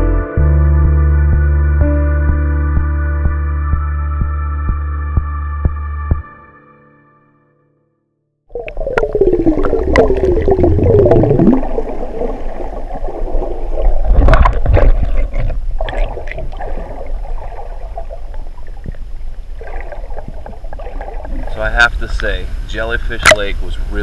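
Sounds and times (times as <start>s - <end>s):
low underwater rumble: 8.5s - 23.6s
underwater gurgling and bubbles: 8.5s - 23.6s.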